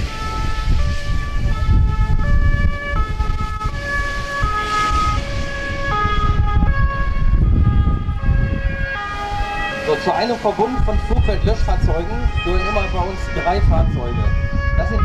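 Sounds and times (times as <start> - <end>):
fire engine two-tone sirens: 0.0 - 15.0.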